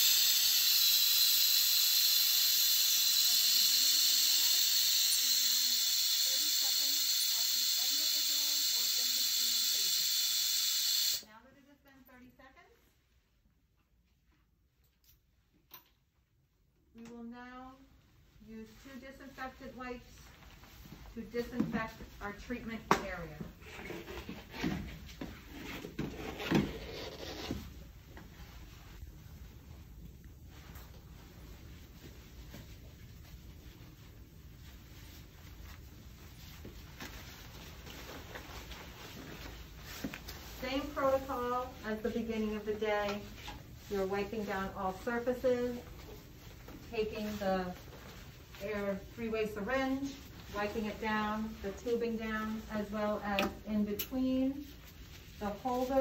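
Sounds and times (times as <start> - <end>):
water spray hissing into sink: 0.0 - 11.2.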